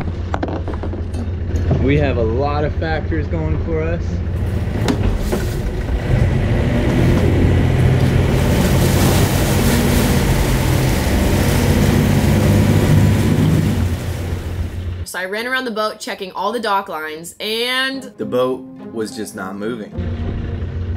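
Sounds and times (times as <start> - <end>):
diesel engine running hard: 0.0 - 15.1, 20.0 - 20.9.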